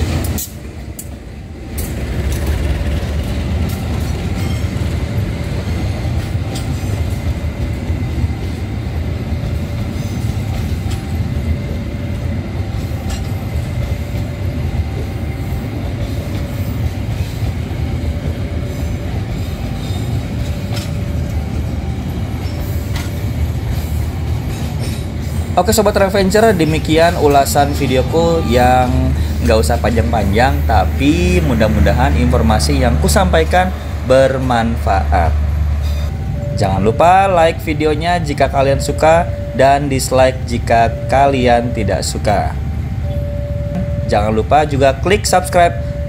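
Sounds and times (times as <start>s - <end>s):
wheels clacking over rail joints: 0.0s - 28.2s
train wheels rumbling on rails: 0.0s - 46.0s.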